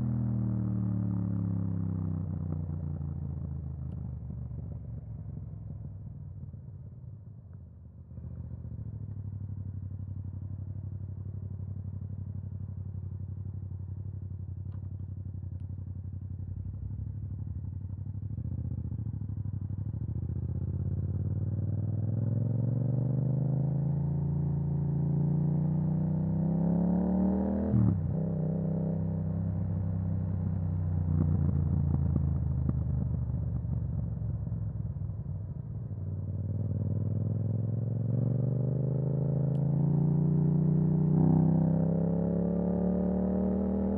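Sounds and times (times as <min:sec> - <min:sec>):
motorcycle engine revving: 0:36.5 - 0:43.9.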